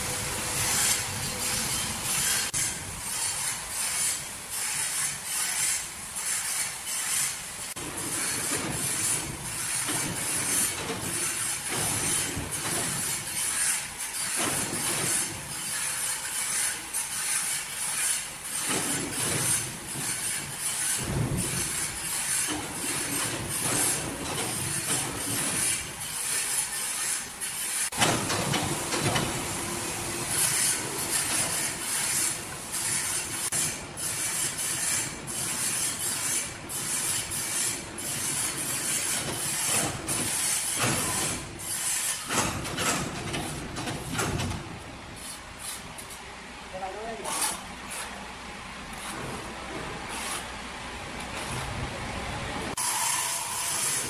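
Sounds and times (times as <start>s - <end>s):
sawmill machinery hiss and rumble: 0.0s - 54.0s
machinery clanks and knocks: 7.7s - 13.6s, 14.2s - 15.6s, 18.5s - 26.0s, 27.8s - 45.0s.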